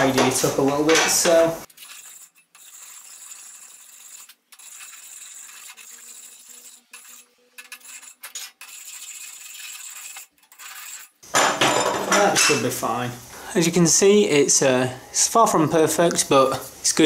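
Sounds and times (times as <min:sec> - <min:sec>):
file rasping on steel: 0:01.8 - 0:11.2.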